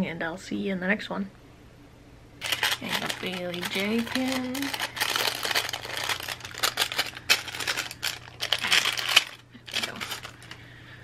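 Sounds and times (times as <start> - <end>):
plastic packaging crinkling: 2.4 - 10.7.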